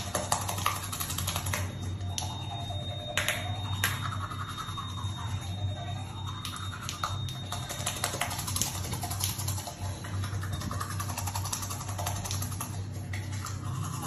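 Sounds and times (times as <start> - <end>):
toothbrush scrubbing teeth: 0.0 - 2.9, 3.6 - 14.0
low steady hum: 0.0 - 14.0.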